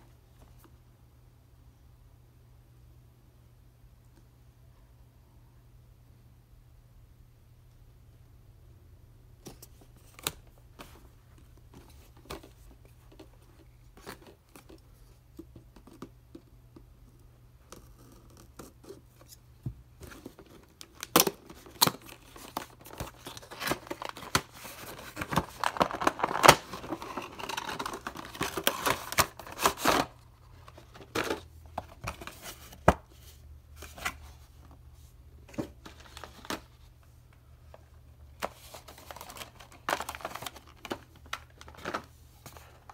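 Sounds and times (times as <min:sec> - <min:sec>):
plastic crinkling and scraping: 0:20.0 - 0:34.8.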